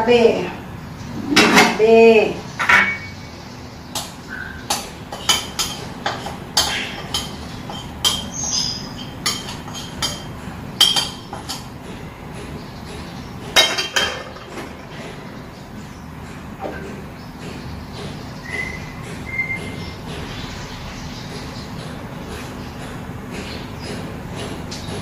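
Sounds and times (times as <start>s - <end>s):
metal spoon clinking against bowl: 5.1s - 8.3s, 9.0s - 11.7s.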